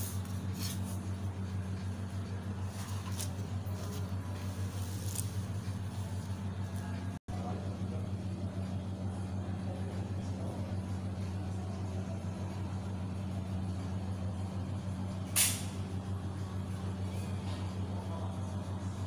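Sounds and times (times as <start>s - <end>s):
short sharp hiss: 15.4s - 15.7s.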